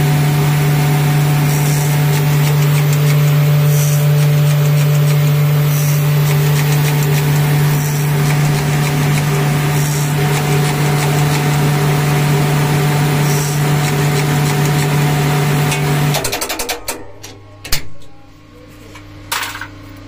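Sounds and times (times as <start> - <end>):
electric motor humming: 0.0 - 16.2.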